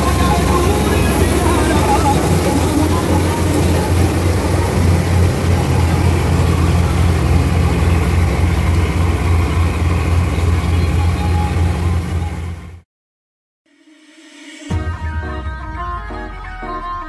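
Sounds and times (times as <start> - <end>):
combine harvester engine drone: 0.0 - 12.8.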